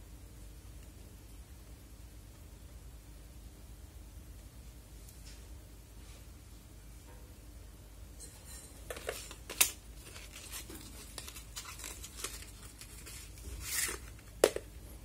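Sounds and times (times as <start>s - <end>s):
cardboard rustling and crinkling: 8.8s - 14.6s.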